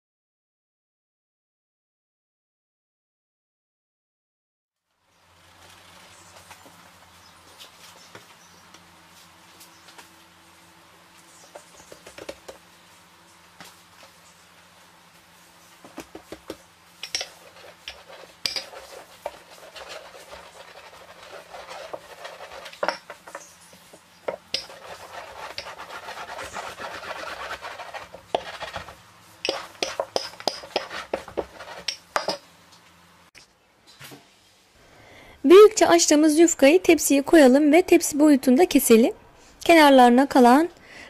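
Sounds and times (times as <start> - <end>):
rolling pin rubbing dough: 15.5 - 32.4.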